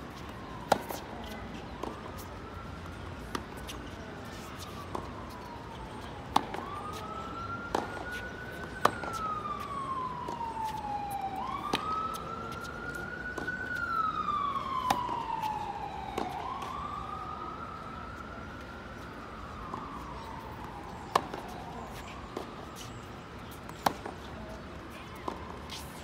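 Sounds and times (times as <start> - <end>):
siren wailing: 0.1 - 23.0
tennis balls hit by rackets: 0.7 - 2.2, 6.3 - 7.0, 7.6 - 10.8, 11.7 - 13.5, 14.6 - 15.2, 21.0 - 22.9, 23.5 - 24.6, 25.2 - 26.0.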